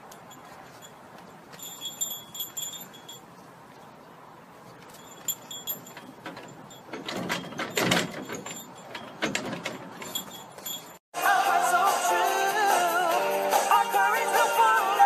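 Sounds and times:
high tinkling tones: 0.0 - 3.5, 4.8 - 9.2, 9.8 - 11.0
light clattering and rattling: 0.0 - 3.5, 4.6 - 11.0
pop music with singing: 11.2 - 15.0.

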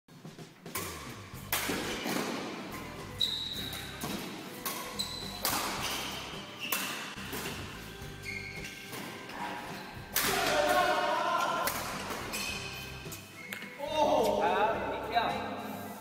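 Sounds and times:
racquets hitting shuttlecock: 0.6 - 7.9, 10.1 - 12.5
shoes squeaking on court: 2.0 - 10.1, 11.8 - 14.4.

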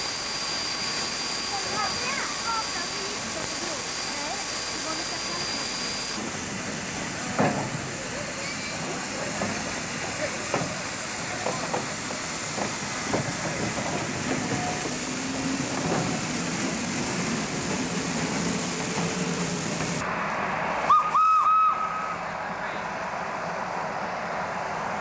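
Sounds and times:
steam hissing: 0.0 - 20.0
train knocks: 1.5 - 3.7, 4.8 - 20.0
high locomotive whistle blasts: 20.8 - 22.2.

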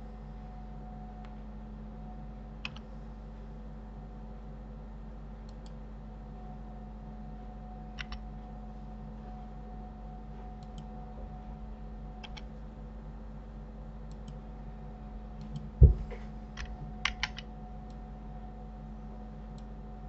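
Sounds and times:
low electrical hum: 0.0 - 20.0
keyboard and mouse clicking: 2.6 - 2.8, 7.9 - 8.2, 10.6 - 10.9, 12.2 - 12.5, 14.1 - 14.4, 16.6 - 18.0
dull thump: 15.8 - 16.3.

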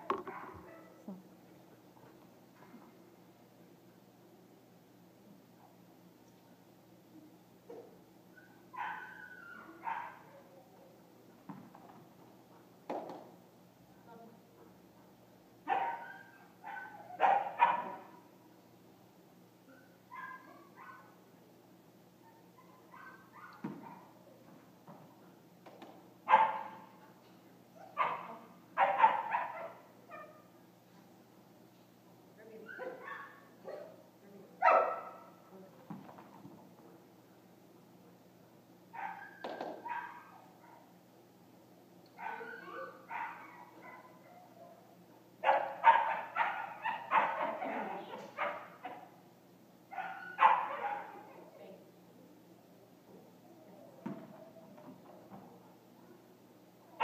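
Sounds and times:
dog barking: 8.8 - 9.2, 9.8 - 10.5, 15.7 - 18.2, 20.1 - 21.1, 22.9 - 24.1, 26.3 - 26.9, 27.8 - 30.4, 32.7 - 34.0, 34.6 - 35.4, 39.0 - 40.9, 42.2 - 44.5, 45.4 - 49.1, 49.9 - 51.3.

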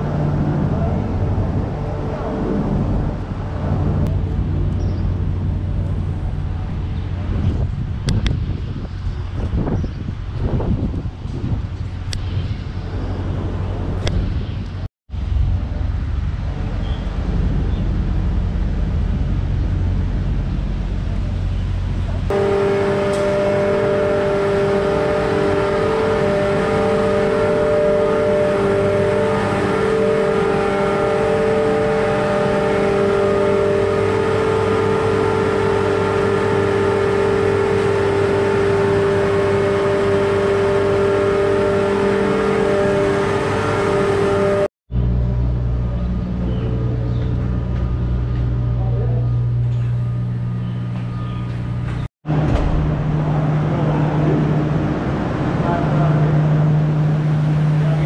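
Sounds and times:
electric motors humming: 0.0 - 58.0
low outdoor rumble: 0.0 - 58.0.

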